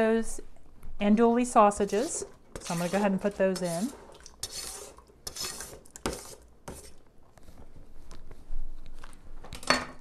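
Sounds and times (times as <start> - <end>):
knife scraping cutting board: 1.8 - 7.0.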